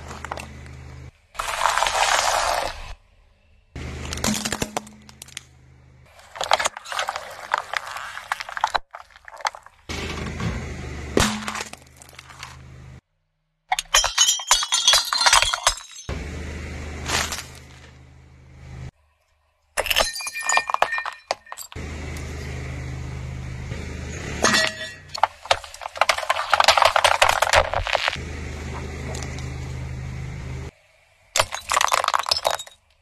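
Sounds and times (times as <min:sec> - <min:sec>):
low engine hum: 0:00.0 - 0:01.3, 0:03.5 - 0:06.1, 0:09.9 - 0:13.0, 0:16.1 - 0:18.9, 0:21.8 - 0:25.5, 0:27.8 - 0:31.3
glass jar shattering: 0:04.1 - 0:05.4, 0:11.2 - 0:12.5, 0:13.7 - 0:16.1, 0:19.8 - 0:21.8, 0:24.4 - 0:28.2, 0:31.4 - 0:32.9
cans crunching and bursting: 0:25.2 - 0:28.2
plastic container cracking: 0:25.2 - 0:28.2.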